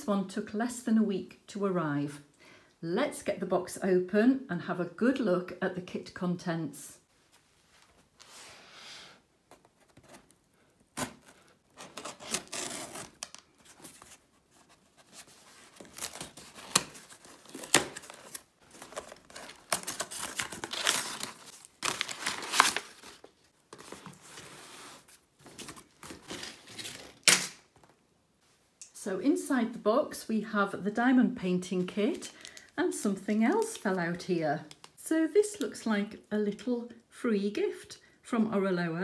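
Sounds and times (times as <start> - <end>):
cardboard ripping and rustling: 10.9 - 27.6.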